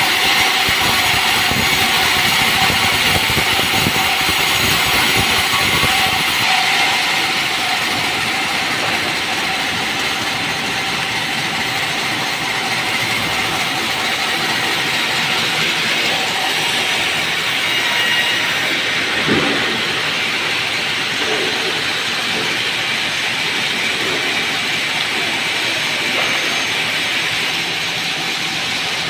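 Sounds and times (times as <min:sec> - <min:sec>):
band saw cutting wood: 0:00.0 - 0:29.0
deep rumble: 0:18.8 - 0:24.9.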